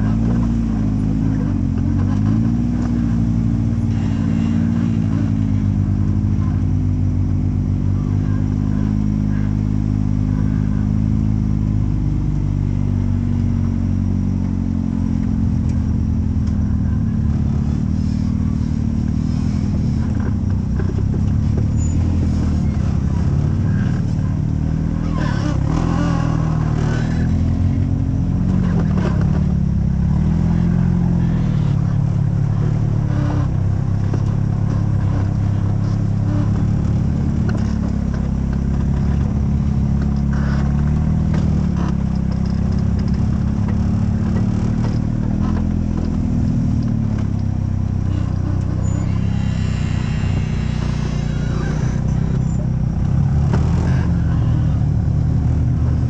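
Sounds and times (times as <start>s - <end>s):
buggy engine at low revs: 0.0s - 56.0s
clatter: 0.0s - 56.0s.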